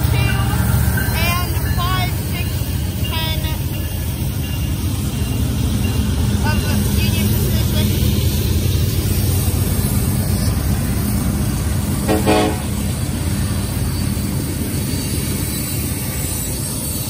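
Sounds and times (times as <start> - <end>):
diesel locomotives rumbling: 0.0 - 17.0
train horn toot: 12.0 - 12.8.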